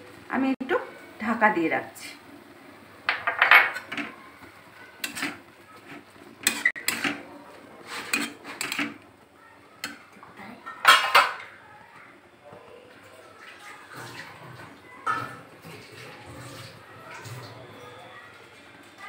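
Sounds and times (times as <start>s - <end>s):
metal spatula scraping a pan: 5.0s - 9.0s.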